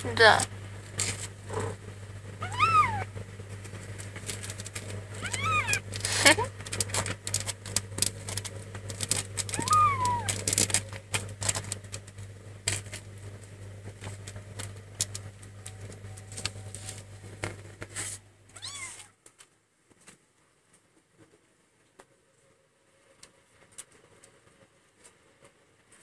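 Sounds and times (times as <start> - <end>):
kitten mewing: 2.4 - 3.1, 5.1 - 6.5, 9.5 - 10.5, 18.5 - 19.1
kittens suckling clicks: 4.0 - 12.1.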